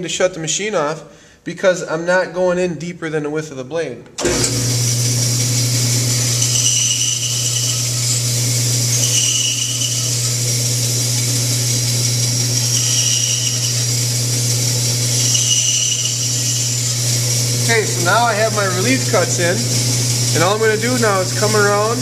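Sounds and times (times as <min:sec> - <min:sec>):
band saw motor hum: 0:04.2 - 0:22.0
saw blade cutting wood: 0:06.0 - 0:22.0.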